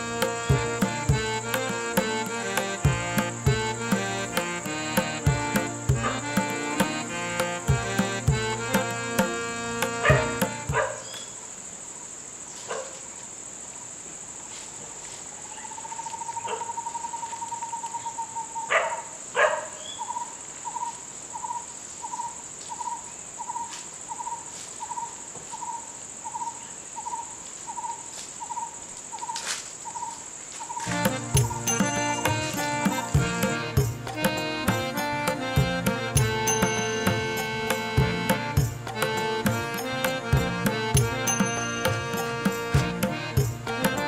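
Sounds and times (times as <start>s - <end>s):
high insect drone: 0.0s - 12.4s, 30.6s - 44.0s
bird trill: 30.8s - 44.0s.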